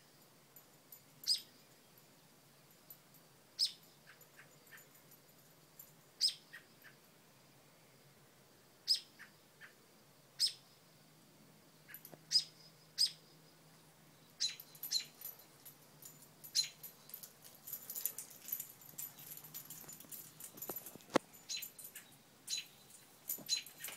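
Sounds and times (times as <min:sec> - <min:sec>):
robin alarm calls: 0:06.2 - 0:07.0, 0:08.9 - 0:09.8, 0:10.4 - 0:10.6, 0:11.9 - 0:13.2, 0:14.4 - 0:15.2, 0:16.5 - 0:16.8, 0:21.5 - 0:22.8.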